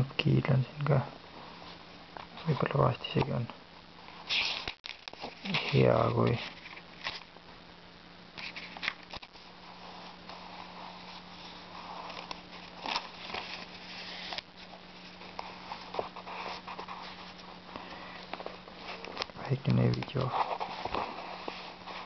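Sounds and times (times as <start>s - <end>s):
steady low hum: 0.0s - 22.0s
handling clicks and rustles: 11.2s - 22.0s.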